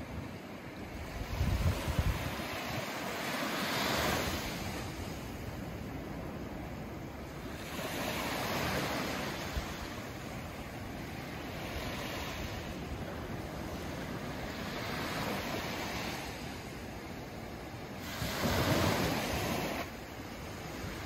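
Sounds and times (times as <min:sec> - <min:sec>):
wind rumbling on microphone: 0:00.0 - 0:10.3
small waves breaking on beach: 0:00.0 - 0:21.0.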